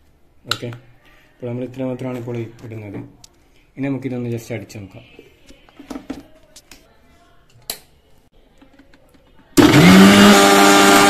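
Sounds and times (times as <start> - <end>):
mixer grinder motor whine: 9.6 - 11.0.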